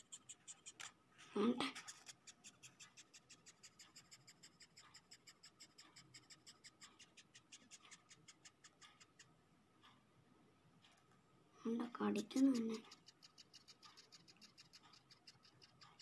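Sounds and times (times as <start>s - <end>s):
beetle squeaky chirps: 12.5s - 16.0s.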